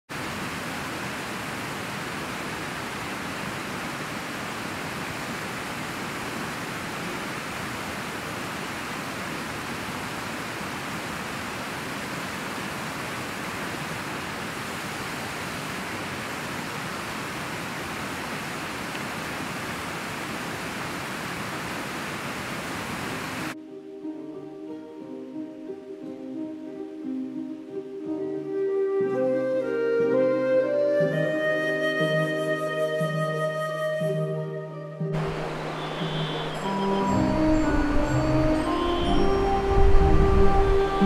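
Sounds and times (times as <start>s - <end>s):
waterfall rushing over rocks: 0.1s - 23.6s, 35.2s - 41.0s.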